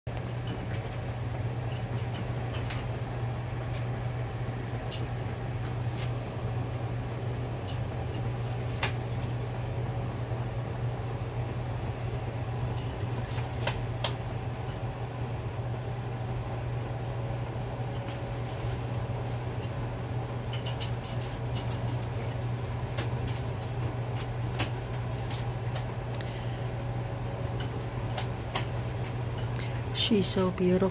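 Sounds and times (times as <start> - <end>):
low machine hum: 0.1 - 30.9
wet wings flapping: 12.9 - 14.3.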